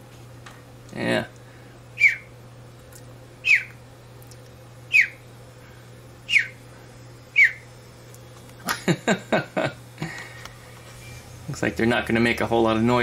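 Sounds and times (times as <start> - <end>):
chattering bird notes: 2.0 - 2.3, 3.4 - 3.8, 4.9 - 5.2, 6.3 - 6.6, 7.3 - 7.7
cockatiel chirps: 2.0 - 2.3, 3.4 - 3.8, 4.9 - 5.2, 6.3 - 6.6, 7.3 - 7.7.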